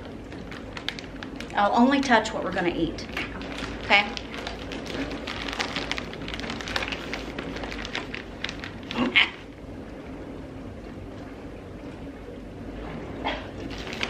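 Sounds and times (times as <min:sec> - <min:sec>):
plastic bag crinkling: 0:00.0 - 0:09.4, 0:13.6 - 0:14.0.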